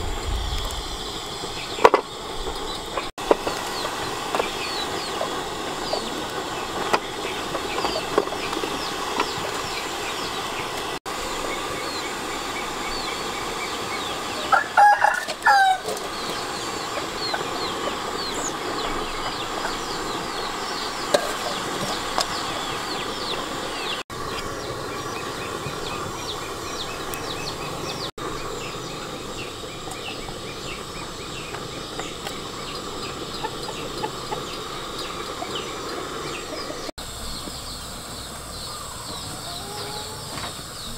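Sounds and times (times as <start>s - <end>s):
rooster crowing: 14.4s - 16.0s, 38.7s - 40.4s.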